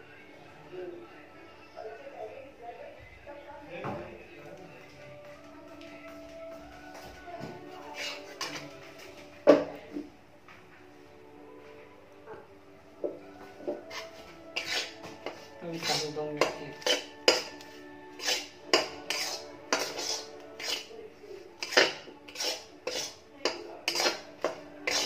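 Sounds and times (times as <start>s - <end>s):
faint background music: 0.0s - 25.0s
metal spatula scraping pan: 7.9s - 8.7s, 13.8s - 20.9s, 21.6s - 25.0s.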